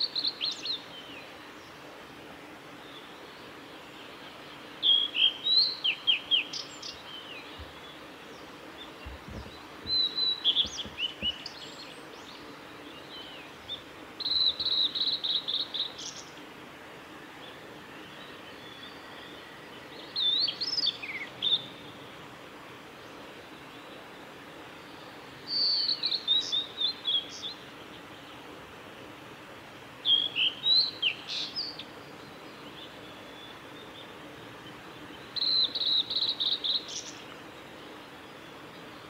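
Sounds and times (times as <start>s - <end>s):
bird singing high whistled notes: 13.1s - 16.3s, 25.5s - 27.5s, 35.4s - 37.2s.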